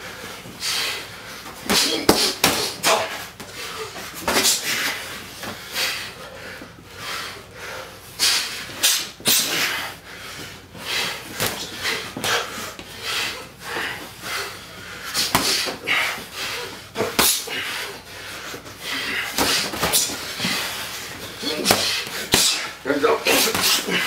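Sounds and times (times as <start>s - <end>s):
gloves smacking: 10.4s - 12.9s, 19.0s - 22.7s, 23.3s - 24.0s.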